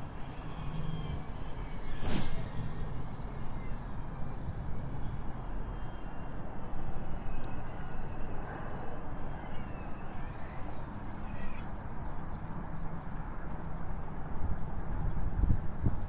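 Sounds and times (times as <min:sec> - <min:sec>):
wind rumble on microphone: 0:09.9 - 0:16.0.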